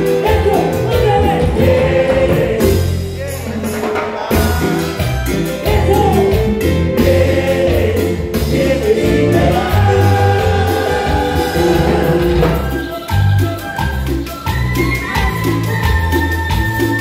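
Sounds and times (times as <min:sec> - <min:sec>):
men singing with live band: 0:00.0 - 0:13.8
bass line: 0:00.0 - 0:17.0
percussion strokes: 0:00.0 - 0:17.0.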